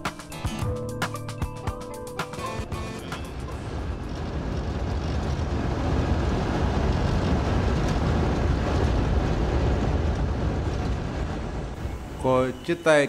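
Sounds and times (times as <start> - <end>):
vehicle rumbling on dirt road: 2.4 - 12.4.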